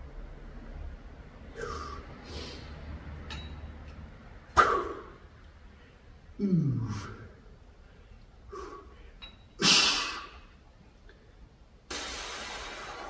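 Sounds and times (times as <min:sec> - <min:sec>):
man grunting loudly: 0:06.4 - 0:07.4.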